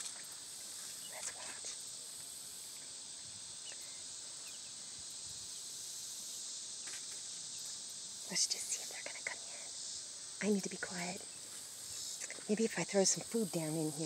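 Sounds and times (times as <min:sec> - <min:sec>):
high-pitched insect chorus: 0:00.0 - 0:14.0.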